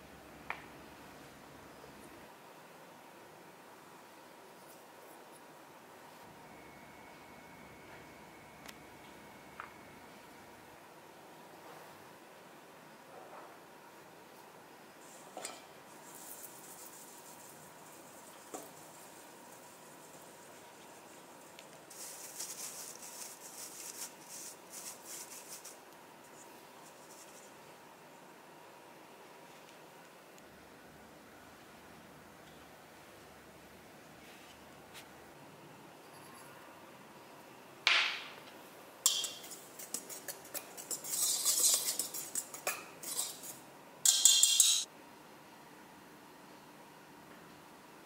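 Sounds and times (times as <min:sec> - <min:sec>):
flour rustling through wire sieve: 0:15.0 - 0:27.5, 0:39.1 - 0:44.9
whisk scratching in metal bowl: 0:39.1 - 0:44.8.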